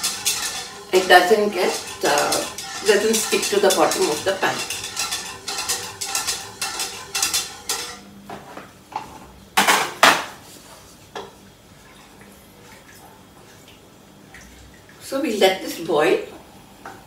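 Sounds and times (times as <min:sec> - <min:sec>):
metal utensil scraping a saucepan: 0:00.0 - 0:08.2.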